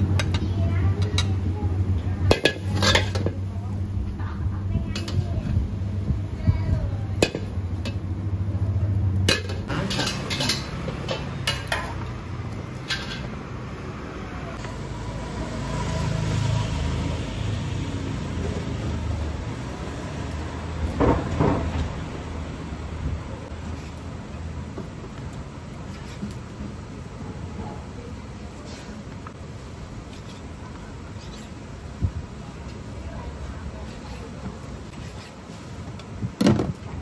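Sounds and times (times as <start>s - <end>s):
spatula and dishes clinking: 2.3s - 3.4s, 9.3s - 12.0s.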